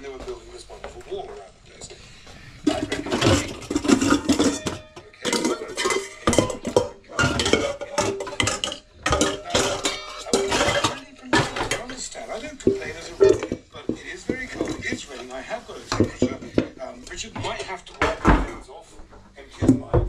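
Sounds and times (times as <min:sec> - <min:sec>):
metal bowls clattering: 0:02.6 - 0:18.6.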